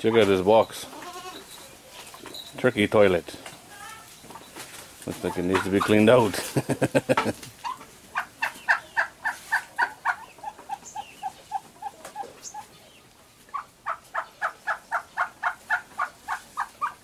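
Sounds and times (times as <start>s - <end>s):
turkey hen yelping: 7.6s - 12.7s, 13.5s - 17.0s.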